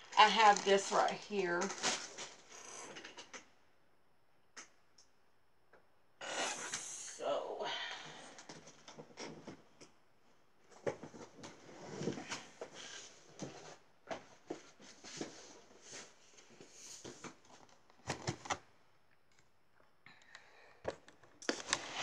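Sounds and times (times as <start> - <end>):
rustling of handled objects: 0.0 - 3.4, 10.6 - 18.6.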